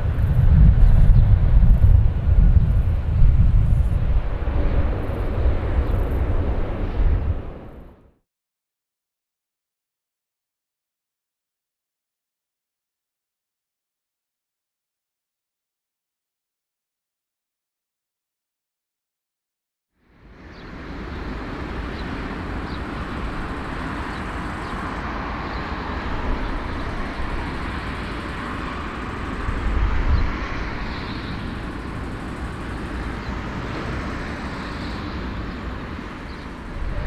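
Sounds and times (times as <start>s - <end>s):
jet engines running: 0.0s - 8.1s, 20.1s - 37.0s.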